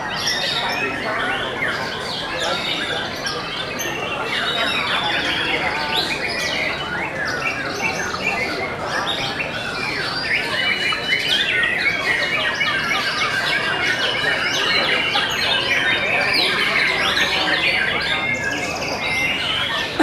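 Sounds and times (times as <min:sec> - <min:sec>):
birds singing: 0:00.0 - 0:20.0.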